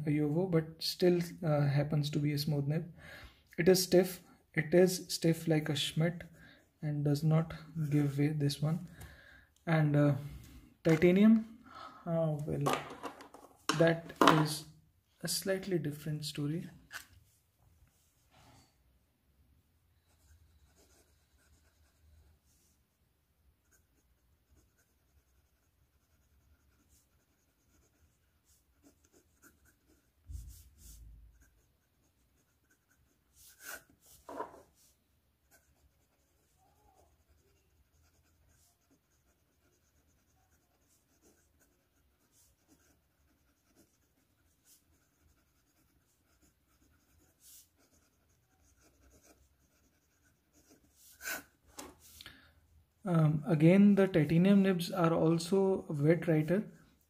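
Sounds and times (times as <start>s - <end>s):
pen nib scratching paper: 20.0s - 22.3s, 23.6s - 52.2s.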